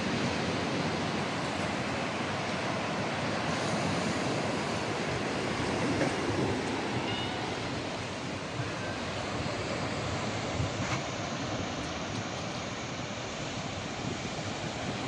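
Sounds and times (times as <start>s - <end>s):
small waves breaking on a beach: 0.0s - 15.0s
wind: 0.0s - 15.0s.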